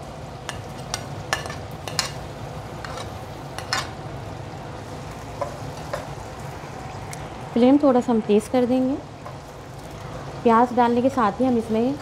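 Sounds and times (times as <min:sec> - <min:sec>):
onions sizzling in oil: 0:00.0 - 0:12.0
metal spoon clicking on pan: 0:00.5 - 0:02.2.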